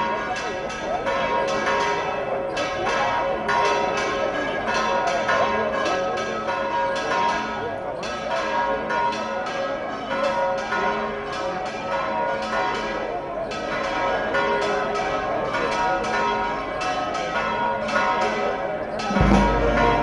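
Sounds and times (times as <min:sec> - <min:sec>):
church bells pealing: 0:00.0 - 0:20.0
crowd murmur: 0:12.7 - 0:20.0.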